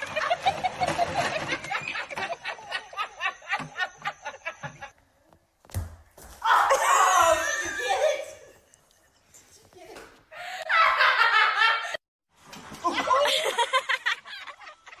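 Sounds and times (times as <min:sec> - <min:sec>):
person laughing hard: 0:12.8 - 0:15.0.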